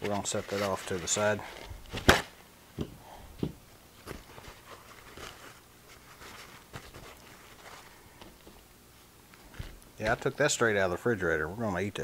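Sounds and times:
plastic wrap and paper rustling: 0:00.0 - 0:02.4, 0:03.9 - 0:08.7.

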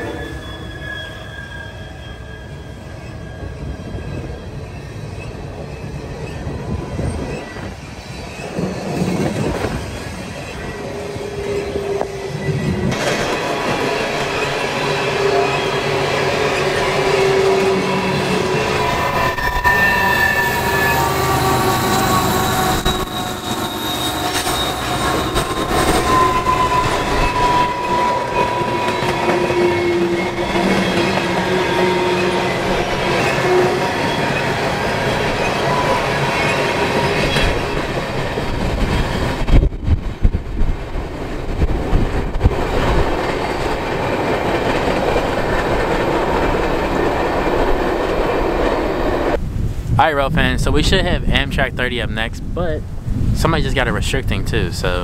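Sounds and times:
steel wheels squealing: 0:00.0 - 0:39.6
train wheels rumbling and clattering: 0:02.7 - 0:49.4.

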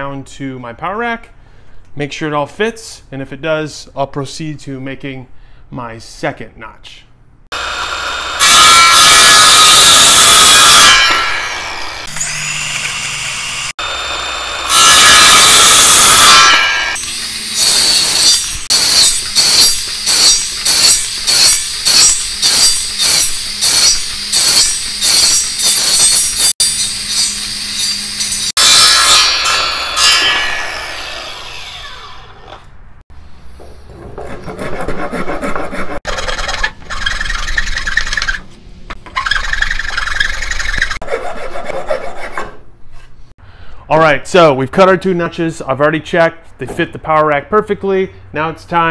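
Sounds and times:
circular saw cutting wood: 0:07.5 - 0:32.7.

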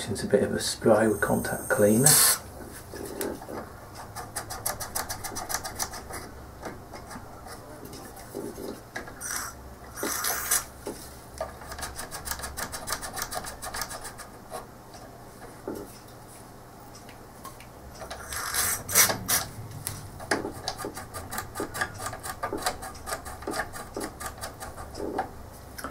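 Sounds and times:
aerosol spray hisses: 0:01.0 - 0:02.4.

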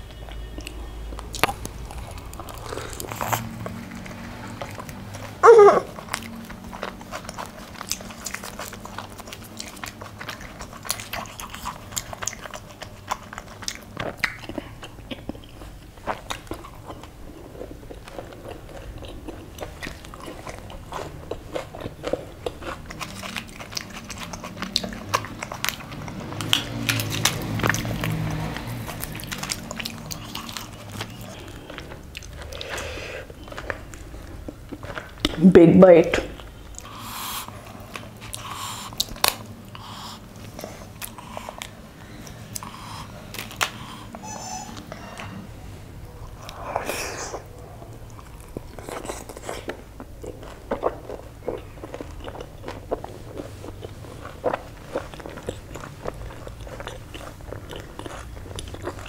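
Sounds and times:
person chewing and eating: 0:00.0 - 0:35.4, 0:36.3 - 0:59.0
squeak falling in pitch: 0:44.2 - 0:44.8.

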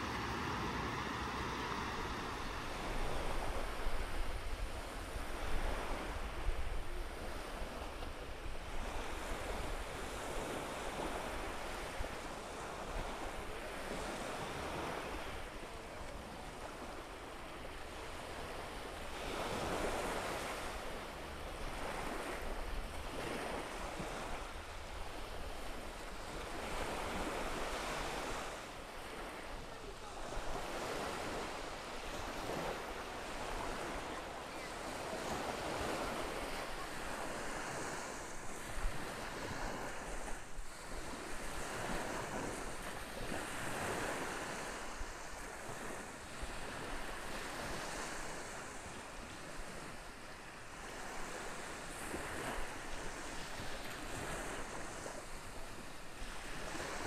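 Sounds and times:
wind rumbling on microphone: 0:00.0 - 0:15.5
waves breaking on beach: 0:00.0 - 0:57.0.

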